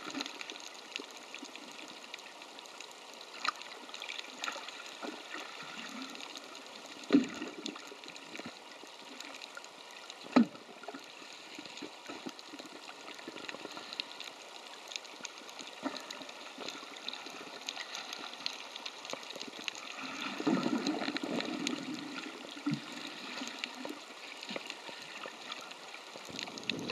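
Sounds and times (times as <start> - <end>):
faint clicks: 0.0 - 5.5
gurgling water: 0.0 - 26.9.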